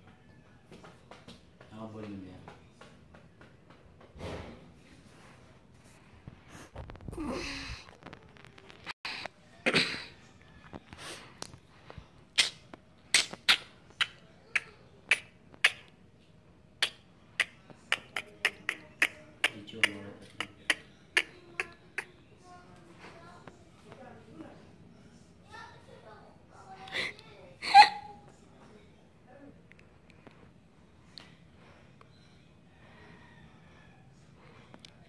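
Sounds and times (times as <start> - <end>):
soft breathy puffs: 4.2 - 8.1.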